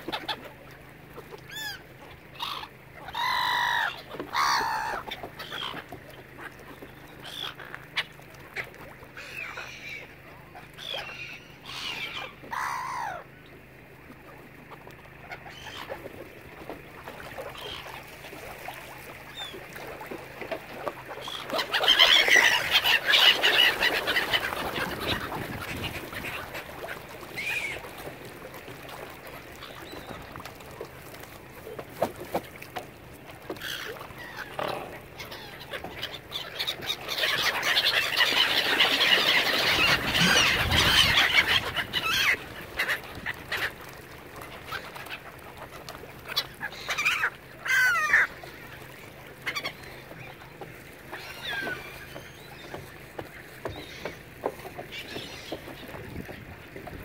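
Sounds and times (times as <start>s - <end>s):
ducks quacking: 21.1s - 28.1s, 33.6s - 50.2s.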